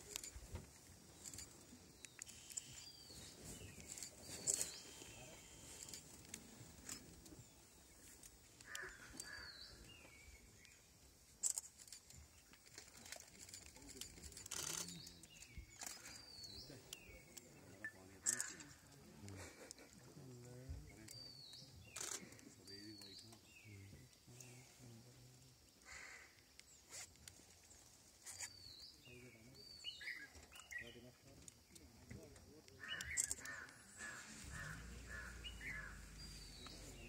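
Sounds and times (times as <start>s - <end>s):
high hooked bird call: 32.8s - 37.0s.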